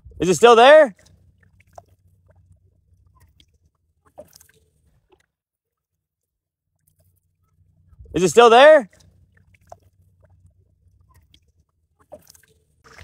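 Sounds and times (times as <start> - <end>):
faint low rumble: 0.0 - 5.0, 6.9 - 8.4.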